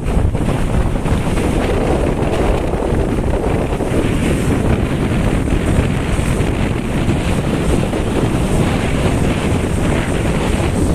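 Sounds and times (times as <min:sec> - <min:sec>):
wind buffeting microphone: 0:00.0 - 0:10.9.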